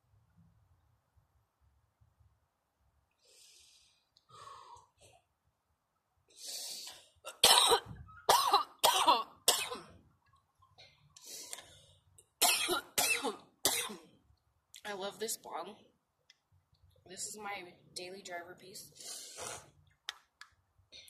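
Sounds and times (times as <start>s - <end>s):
breathy exhales: 3.2s - 5.0s
woman coughing: 7.3s - 10.0s, 12.4s - 14.1s.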